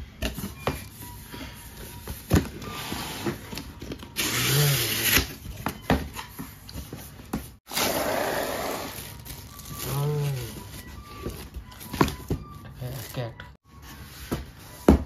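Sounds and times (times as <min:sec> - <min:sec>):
cardboard packaging scraping and rustling: 0:07.7 - 0:12.2.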